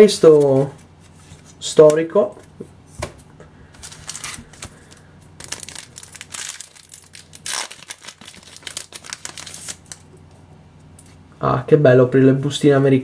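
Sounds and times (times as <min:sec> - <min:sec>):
foil wrapper crinkling and tearing: 0:03.8 - 0:10.1.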